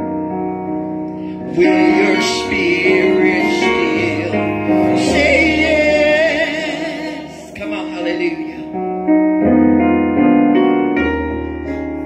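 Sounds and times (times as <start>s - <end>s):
instrumental accompaniment: 0.0s - 12.0s
gospel group singing: 1.2s - 8.7s.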